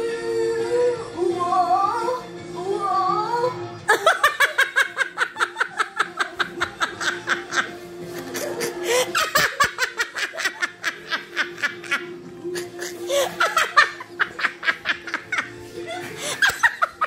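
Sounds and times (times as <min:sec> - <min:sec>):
hearty laughter: 0:03.9 - 0:17.0.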